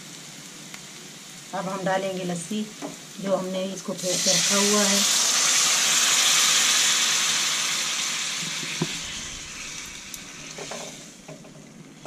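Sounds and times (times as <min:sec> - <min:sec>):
liquid hissing in hot pan: 0:03.9 - 0:12.0
wooden spatula scraping: 0:08.8 - 0:11.3.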